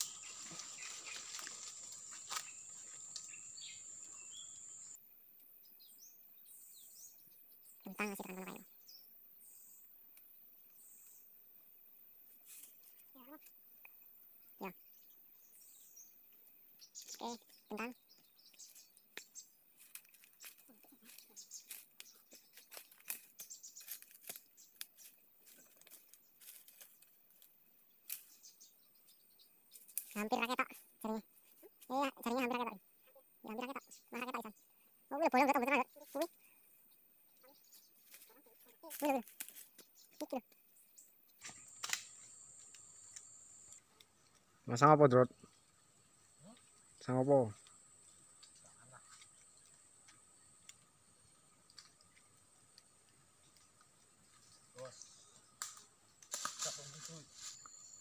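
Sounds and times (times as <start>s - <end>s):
footsteps through dry leaves: 0.0s - 3.1s, 19.8s - 27.0s
bird chirps: 0.0s - 5.0s, 14.6s - 19.6s, 20.2s - 26.4s, 28.2s - 31.3s, 33.5s - 39.2s, 39.8s - 56.2s, 57.1s - 58.0s
insect drone: 0.0s - 58.0s.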